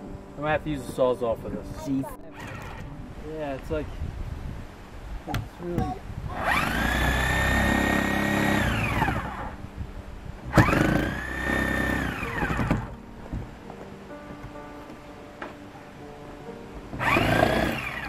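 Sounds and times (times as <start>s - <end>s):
power tool motor whining: 2.3s - 2.9s, 6.3s - 9.6s, 10.5s - 12.9s, 17.0s - 18.0s.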